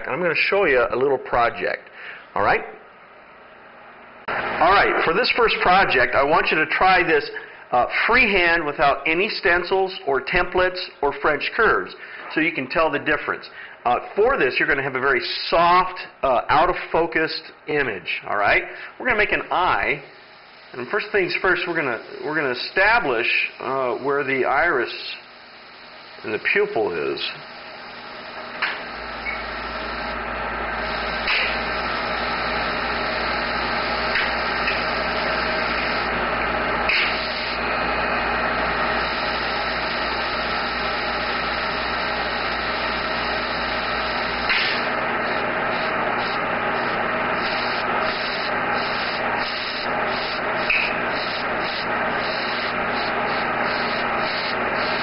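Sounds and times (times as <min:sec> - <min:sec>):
airbrush hissing: 0:19.2 - 0:55.0.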